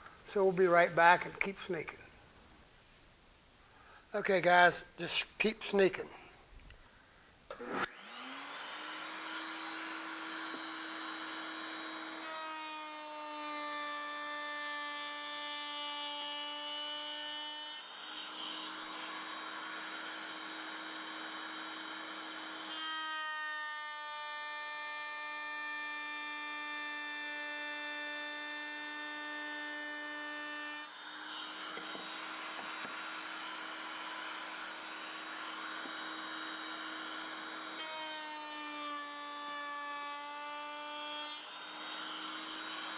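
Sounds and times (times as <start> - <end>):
power tool motor whining: 7.5 - 13.4, 30.4 - 42.9
cutter cutting wood: 7.5 - 42.9.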